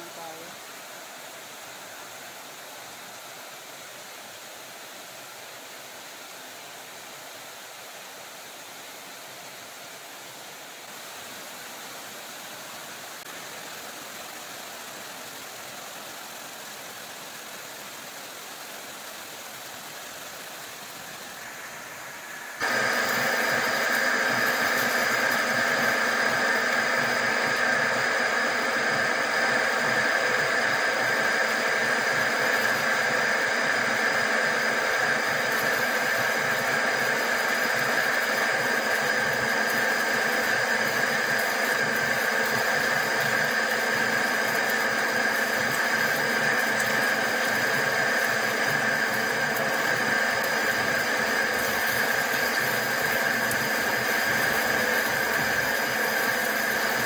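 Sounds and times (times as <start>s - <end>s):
steady hiss: 0.0s - 57.0s
lathe machining whine: 20.9s - 57.0s.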